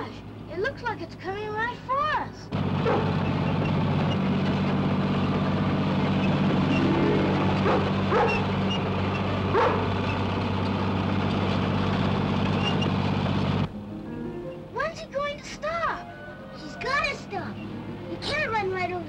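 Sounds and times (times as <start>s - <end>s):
bulldozer engine running: 2.5s - 19.0s
dog barking: 2.8s - 3.2s, 7.6s - 8.5s, 9.5s - 9.9s.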